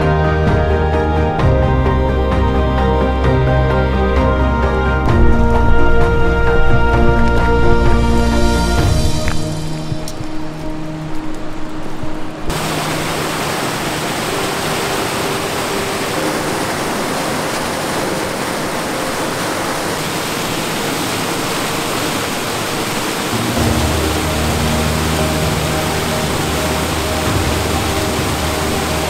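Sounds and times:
background music: 0.0s - 20.1s, 22.5s - 29.0s
water rushing over rapids: 0.0s - 29.0s.

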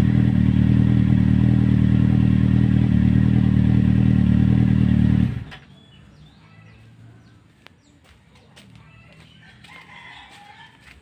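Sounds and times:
motorcycle engine idling: 0.0s - 6.0s
faint bird chirps: 5.6s - 8.0s.

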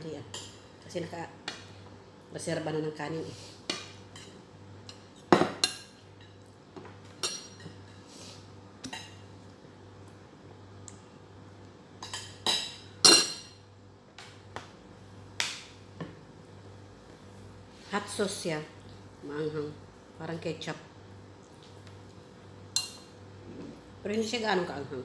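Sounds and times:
spoon and dishes clinking: 12.0s - 13.6s.

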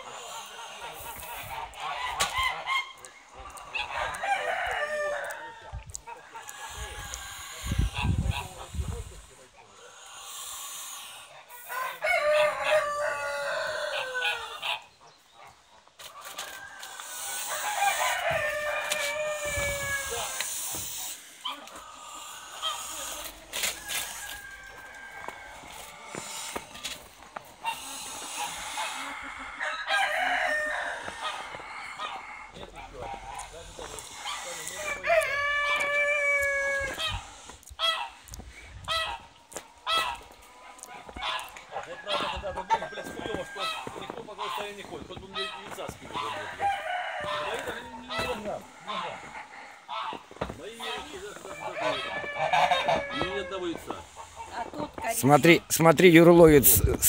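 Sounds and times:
rooster crowing: 3.8s - 5.8s, 11.6s - 14.8s, 16.3s - 20.5s, 22.6s - 27.0s, 27.7s - 37.3s, 40.0s - 44.7s, 45.6s - 50.1s, 50.8s - 53.9s.

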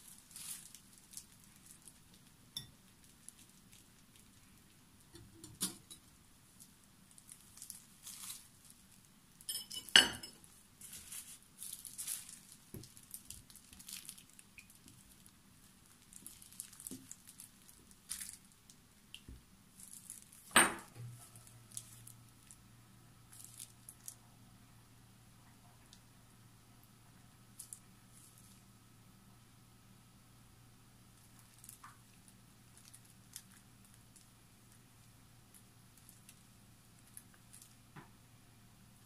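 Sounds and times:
faint steady hum: 0.0s - 39.0s
clinks against glass: 9.5s - 10.4s.

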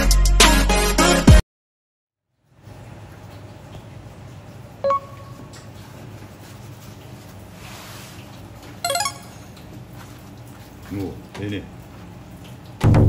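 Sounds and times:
short beep: 4.8s - 5.4s, 8.9s - 9.4s
paper towel rustling: 5.8s - 8.8s.

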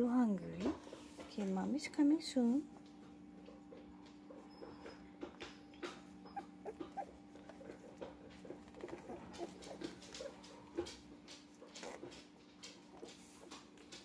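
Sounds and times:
puppy squeaking: 6.2s - 7.2s, 8.7s - 10.4s.

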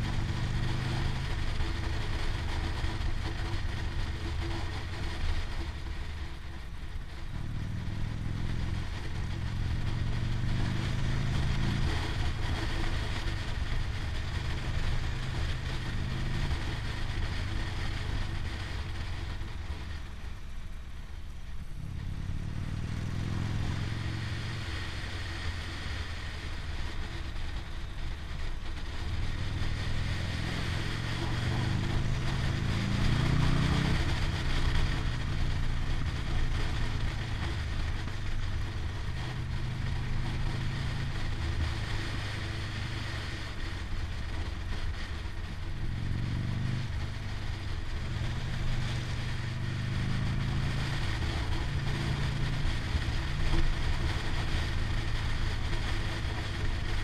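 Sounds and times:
motorcycle engine accelerating: 0.0s - 20.4s, 21.6s - 57.0s.

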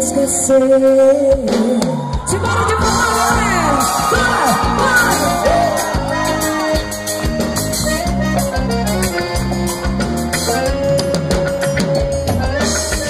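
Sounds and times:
electric guitar: 0.0s - 13.0s
drums steady beat: 1.3s - 13.0s
electric bass: 2.2s - 13.0s
held keyboard note: 5.2s - 13.0s.

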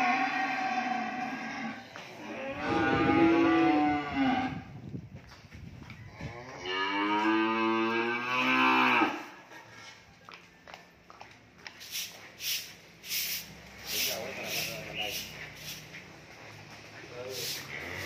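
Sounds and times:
cattle mooing: 0.0s - 4.7s, 6.4s - 9.3s, 17.7s - 18.0s.

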